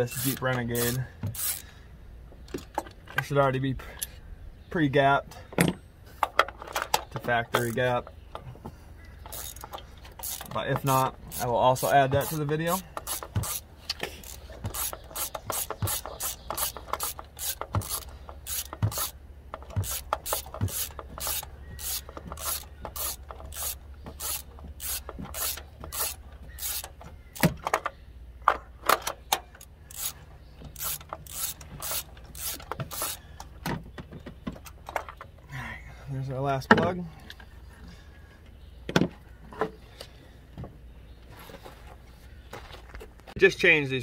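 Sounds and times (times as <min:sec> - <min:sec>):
hand ratchet clicking: 0:00.0 - 0:01.7, 0:09.3 - 0:11.5, 0:12.2 - 0:27.5, 0:29.6 - 0:33.3.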